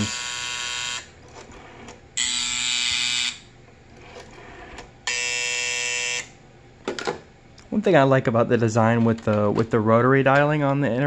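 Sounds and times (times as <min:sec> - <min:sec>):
telephone buzzer: 0:00.0 - 0:01.1, 0:02.2 - 0:03.5, 0:05.0 - 0:06.4.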